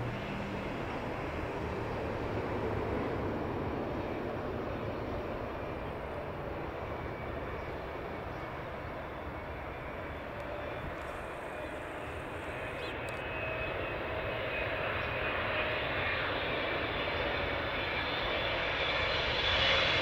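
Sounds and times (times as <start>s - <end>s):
jet engines rushing: 0.0s - 20.0s.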